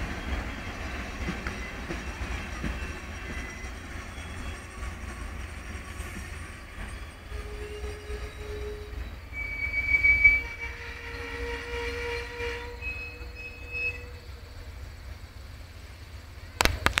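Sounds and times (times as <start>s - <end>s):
train wheels squealing: 0.0s - 16.4s
low rumble of train cars: 0.0s - 17.0s
sharp clicks: 16.6s - 17.0s.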